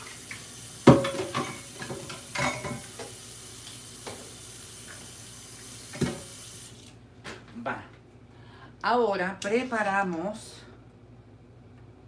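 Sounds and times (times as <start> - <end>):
tap water running into sink: 0.0 - 6.9.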